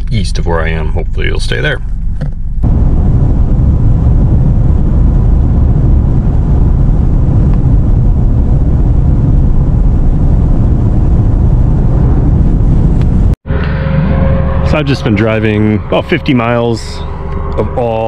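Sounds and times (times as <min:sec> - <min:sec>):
road and wind noise inside car: 0:00.0 - 0:13.4.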